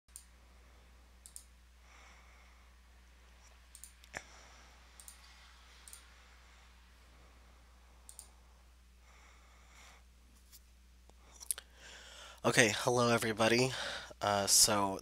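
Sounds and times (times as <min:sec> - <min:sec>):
computer mouse clicks: 0:00.1 - 0:00.4, 0:01.2 - 0:01.6, 0:03.4 - 0:04.3, 0:04.9 - 0:06.2, 0:08.0 - 0:08.4
faint low electrical hum: 0:00.1 - 0:15.0.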